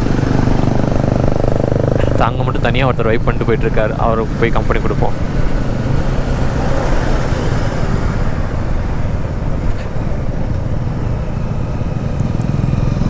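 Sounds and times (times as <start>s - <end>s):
motorcycle engine running: 0.0s - 13.0s
wind and road noise: 0.0s - 13.0s.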